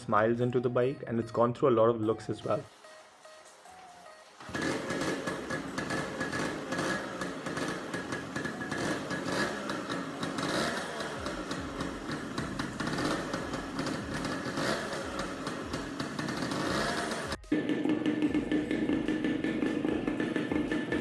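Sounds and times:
two-stroke motorcycle engine running: 4.4 - 21.0.

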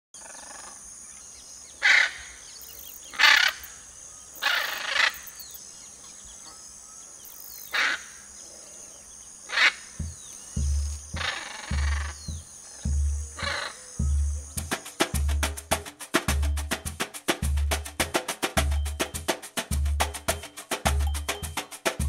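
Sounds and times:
small birds chirping: 0.2 - 22.0
macaw squawks: 1.8 - 3.8, 4.4 - 5.4, 7.3 - 8.2, 9.5 - 15.1
deep drum beats: 10.0 - 22.0.

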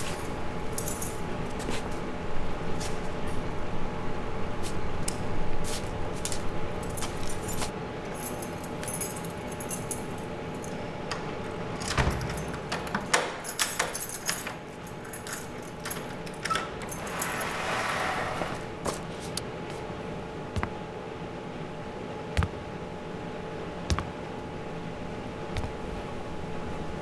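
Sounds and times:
faint steady hum: 0.0 - 27.0
keys jangling in a door lock: 6.8 - 10.8, 11.8 - 17.8.

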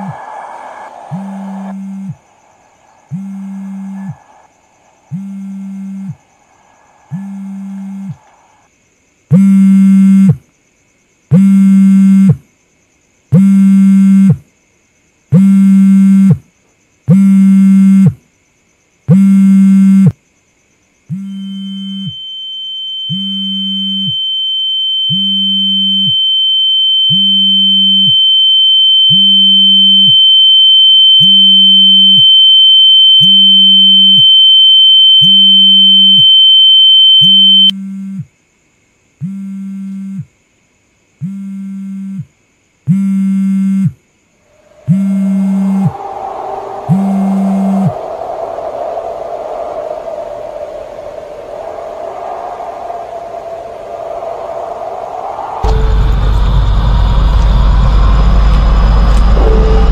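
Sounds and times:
steady high-pitched tone: 0.0 - 8.7, 44.5 - 59.9
phone vibrating: 41.2 - 42.2, 44.9 - 45.8.

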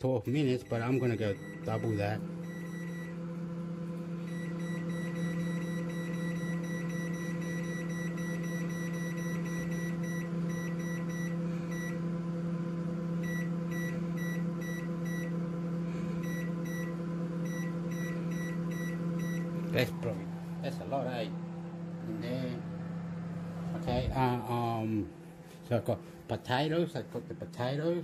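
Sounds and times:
microwave oven humming: 0.0 - 28.0
keypad beeps: 4.3 - 12.0.

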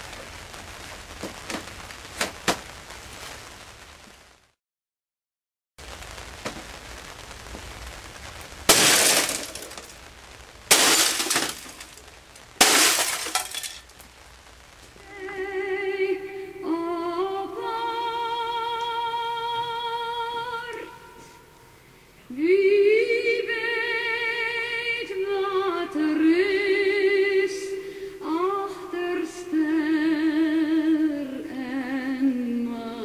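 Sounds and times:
sledgehammer smashing printer: 8.7 - 9.9, 10.7 - 12.0, 12.6 - 13.7
glass shattering: 8.7 - 10.0, 10.7 - 12.0, 12.6 - 14.0
woman singing with vibrato: 15.0 - 21.4, 22.3 - 33.0.

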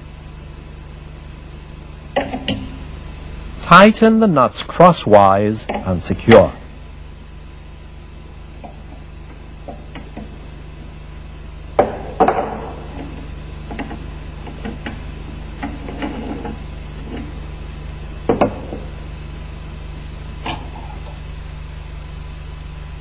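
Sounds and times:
steady low hum: 0.0 - 23.0
metal clanks and taps: 2.2 - 2.8.

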